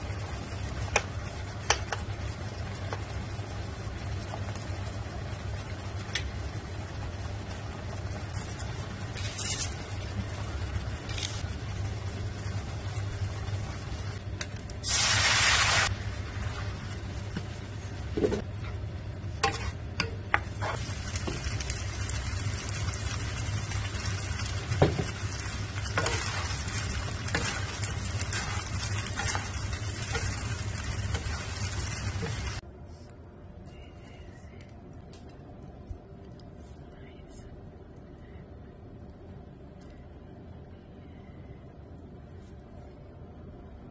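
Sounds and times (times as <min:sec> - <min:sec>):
food sizzling in a frying pan: 0:00.0 - 0:18.4, 0:19.4 - 0:32.6
steady low hum: 0:00.0 - 0:43.9
loud hiss: 0:14.8 - 0:15.9.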